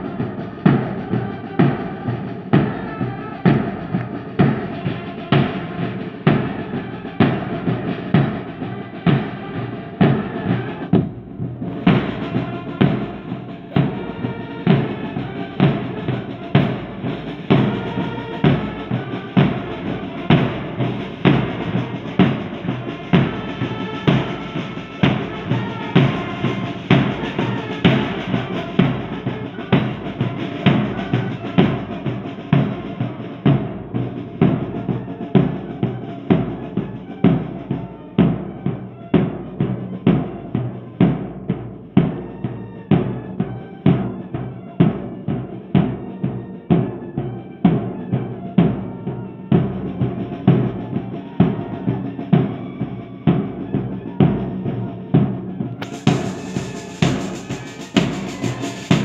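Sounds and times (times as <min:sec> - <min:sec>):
bass drums beating: 0:00.0 - 0:44.3, 0:49.6 - 0:59.0
snare drum strokes: 0:00.0 - 0:46.9, 0:47.6 - 0:59.0
cymbal clashes: 0:55.8 - 0:59.0.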